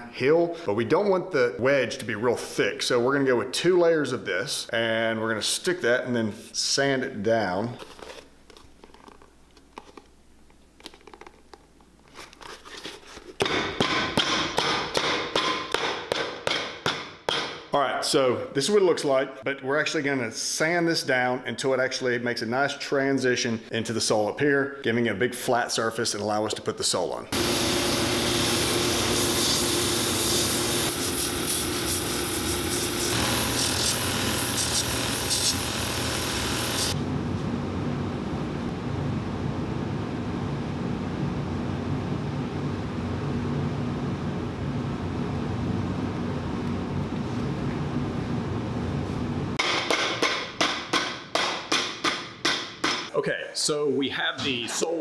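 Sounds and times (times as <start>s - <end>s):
rubber sheet rustling: 7.7s - 10.2s, 10.8s - 13.4s
machine running hum: 27.3s - 49.6s
sanding wheel grinding: 27.4s - 37.0s.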